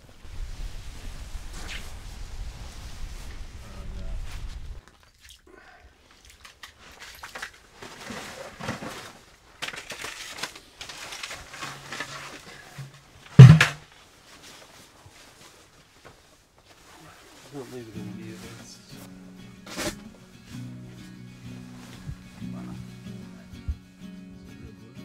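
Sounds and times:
camp chair frame clattering: 6.4 - 13.9, 19.6 - 20.1
fabric rustling: 6.7 - 23.4
sharp loud knock: 13.4 - 13.8.

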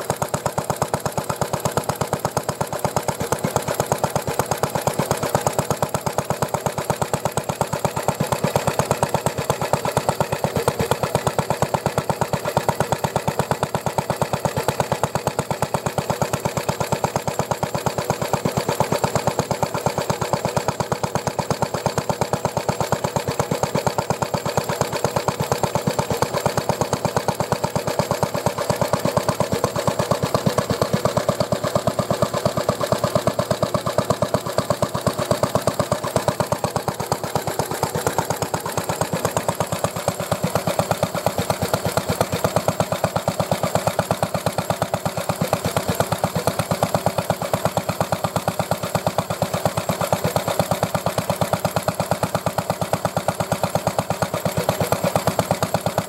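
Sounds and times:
stationary engine running: 0.0 - 56.0.

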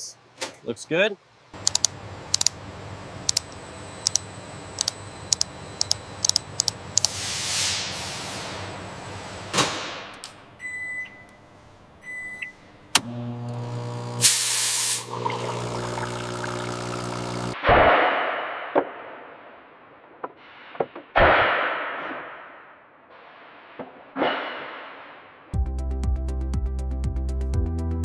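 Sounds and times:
steady machine hum: 1.3 - 7.2, 11.4 - 17.6
control console keys clicking: 1.6 - 2.6, 3.3 - 7.1
coffee machine steam hissing: 7.0 - 9.4, 13.6 - 17.6.

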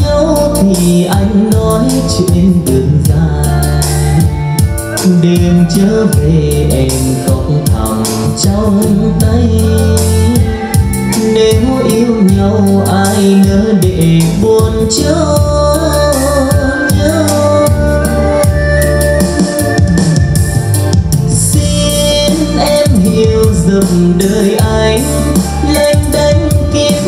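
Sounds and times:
heavy bass: 0.0 - 27.0
person singing over a beat: 0.0 - 27.0.

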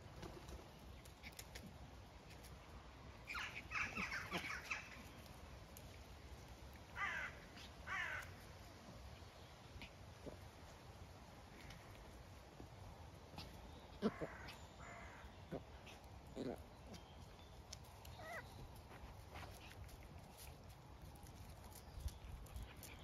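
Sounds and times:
crows cawing: 7.0 - 8.4, 14.0 - 15.3.

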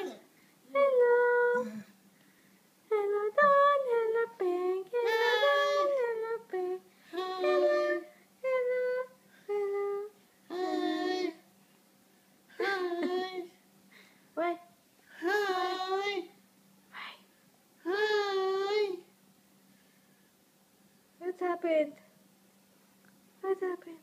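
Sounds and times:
high-pitched voice singing: 5.0 - 6.2, 7.1 - 11.4.

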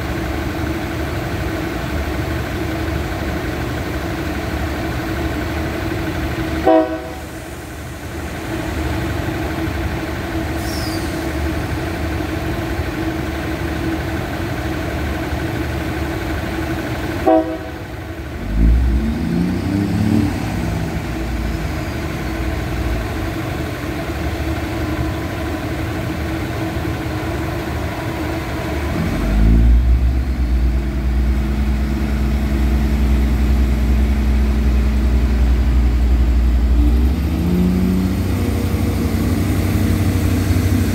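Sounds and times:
diesel train engines idling: 0.0 - 40.9
short horn toots: 6.6 - 7.3, 17.2 - 17.8.

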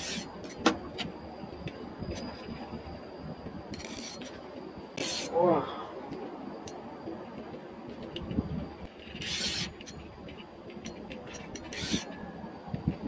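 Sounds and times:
wind: 0.0 - 13.0
reel clicking: 9.0 - 12.2.

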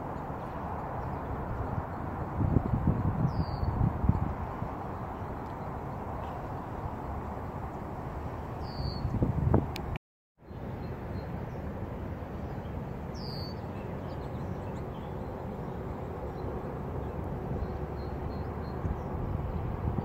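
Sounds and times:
bird chirps: 3.2 - 3.8, 8.6 - 9.2, 12.4 - 16.5.

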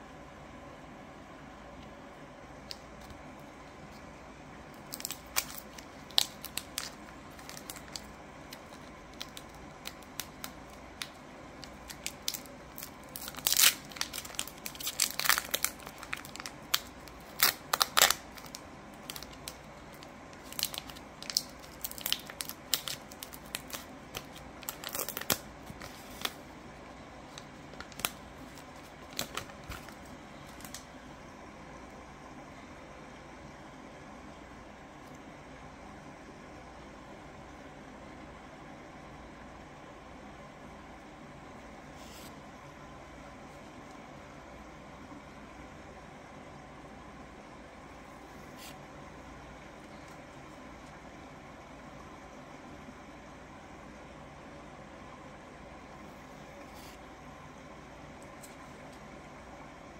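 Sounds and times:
foil wrapper crinkling and tearing: 4.8 - 26.5, 27.3 - 30.8.

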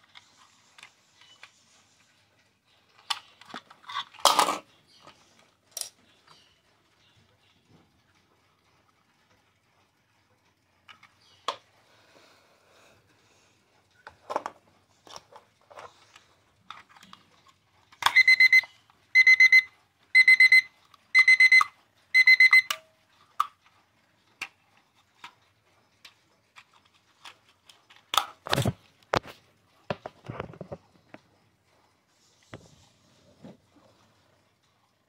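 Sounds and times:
alarm clock beeping: 18.0 - 23.0.

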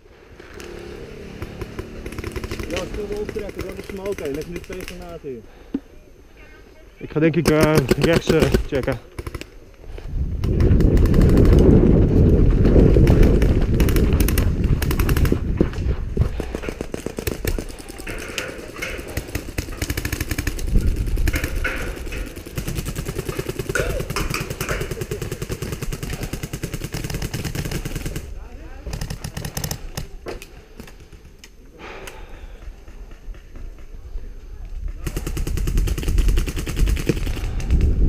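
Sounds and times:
airsoft guns firing: 1.2 - 5.2, 7.2 - 9.6, 10.4 - 11.8, 13.0 - 15.4, 16.4 - 31.2, 35.0 - 37.8.

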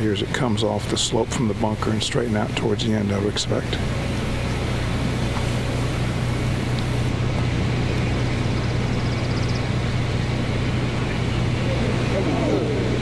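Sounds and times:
steady low hum: 0.0 - 13.0
even hiss: 3.4 - 7.1
faint rapid high ticking: 4.1 - 7.1.

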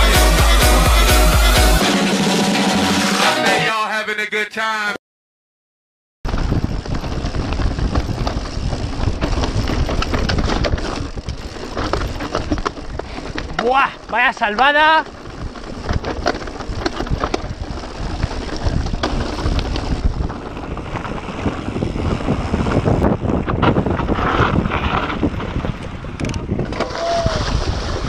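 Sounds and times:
wind on microphone: 6.3 - 14.1, 15.1 - 28.0
bike rattling down rocky trail: 6.3 - 28.0.

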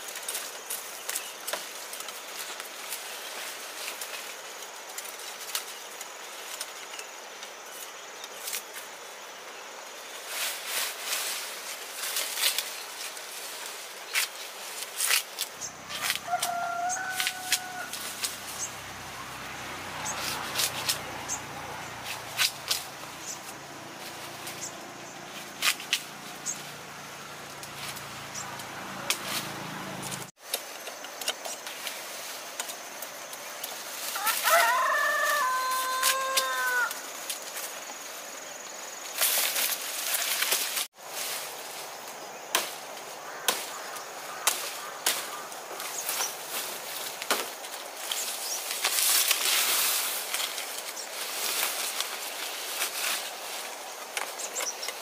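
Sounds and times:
sugarcane rustling and snapping: 0.0 - 9.1, 10.2 - 55.0
rooster crowing: 15.7 - 18.4, 34.1 - 37.1.

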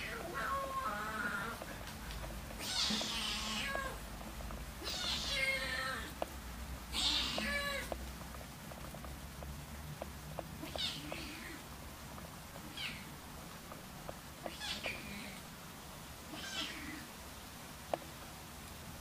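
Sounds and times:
faint clicks: 0.0 - 15.5, 17.8 - 18.8
kitten mewing: 2.6 - 4.0, 4.8 - 6.2, 6.9 - 7.9, 10.6 - 11.7, 12.6 - 13.2, 14.4 - 15.5, 16.3 - 17.1.

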